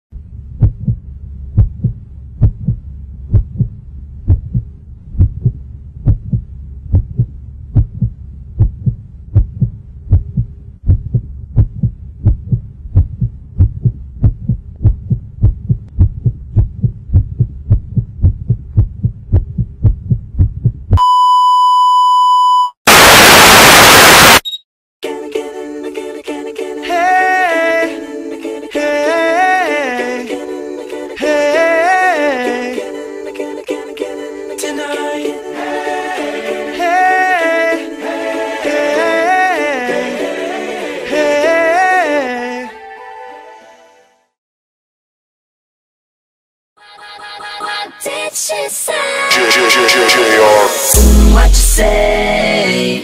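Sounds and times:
low hum: 0.2s - 21.0s, 50.9s - 52.4s
rhythmic low thumping: 0.6s - 21.0s, 50.9s - 52.2s
steady high beep: 21.0s - 24.6s
loud static hiss: 22.9s - 24.4s.

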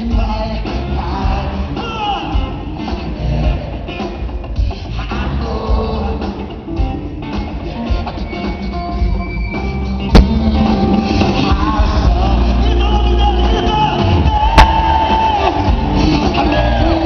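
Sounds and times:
man singing: 0.0s - 6.8s, 10.1s - 17.0s
live rock band playing: 0.0s - 17.0s.

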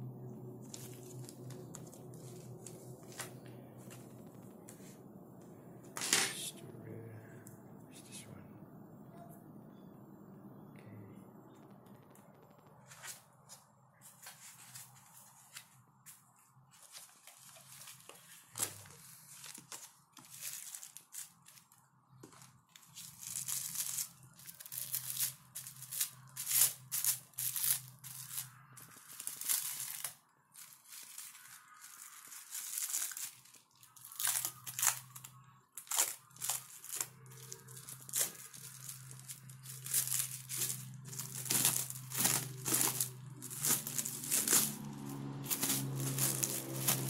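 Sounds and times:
plastic film peeled and crinkled: 0.5s - 4.8s, 12.0s - 47.0s.

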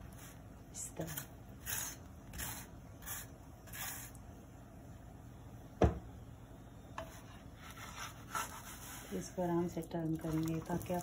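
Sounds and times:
spatula scraping on griddle: 1.0s - 4.2s, 7.0s - 9.4s.

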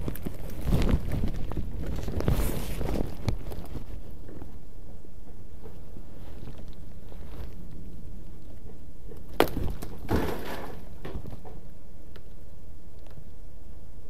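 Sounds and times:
fabric rubbing on microphone: 0.0s - 4.2s, 6.0s - 7.9s
scraping rustle: 0.0s - 11.7s.

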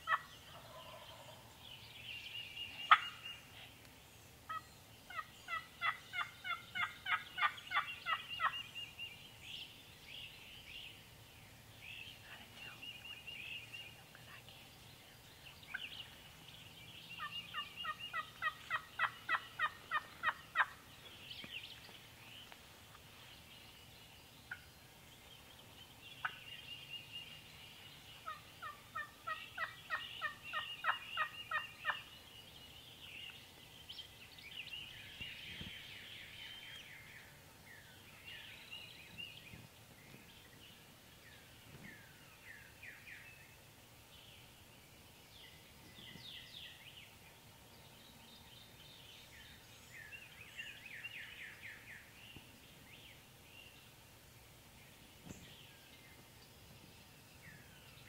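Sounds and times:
songbirds singing: 0.0s - 58.0s
turkey yelping: 0.1s - 1.3s, 2.9s - 3.2s, 4.5s - 8.6s, 17.2s - 20.8s, 28.6s - 32.0s.

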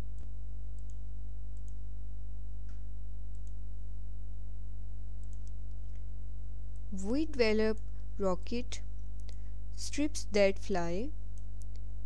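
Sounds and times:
low electrical hum: 0.0s - 12.0s
faint clicks: 0.1s - 1.0s, 1.6s - 1.8s, 5.2s - 6.0s.

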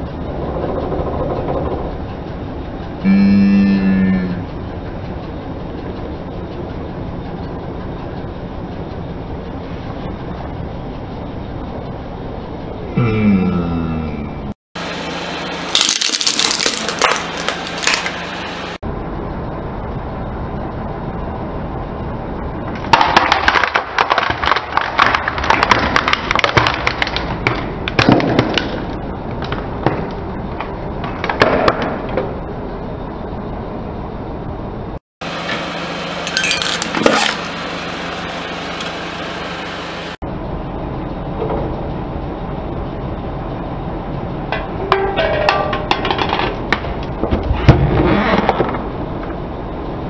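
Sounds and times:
steady low hum: 0.0s - 23.0s, 25.2s - 50.0s
plastic toy cracking and crunching: 15.8s - 18.2s, 23.0s - 28.9s.

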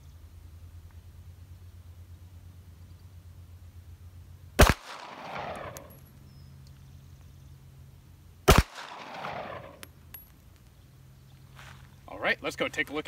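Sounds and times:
pistol shots with echo: 4.6s - 6.0s, 8.5s - 9.8s.

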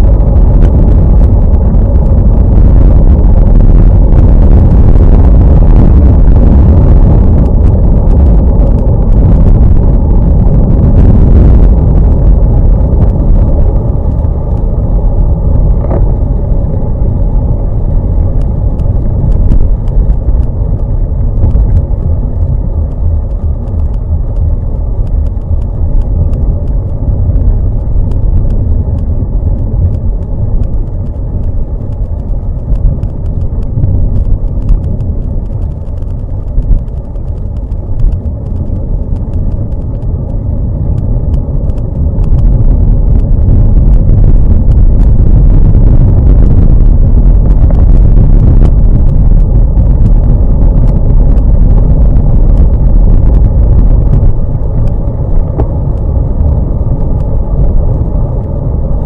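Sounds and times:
road noise on wet road: 0.0s - 59.0s
wind buffeting microphone: 0.0s - 59.0s
faint ticks: 18.3s - 58.6s.

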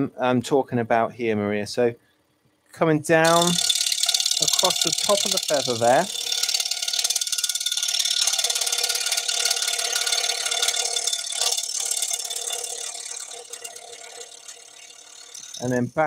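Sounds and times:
scroll saw cutting wood: 3.2s - 16.0s.

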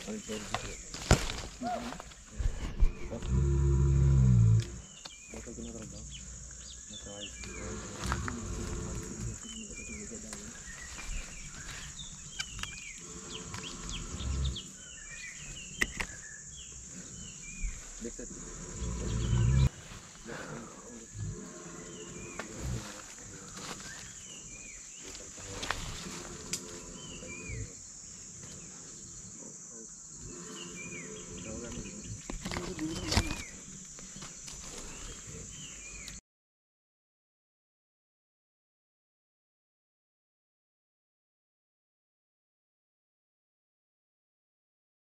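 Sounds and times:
high insect drone: 0.0s - 36.2s
birds chirping and whistling: 4.8s - 29.4s, 30.1s - 36.2s.

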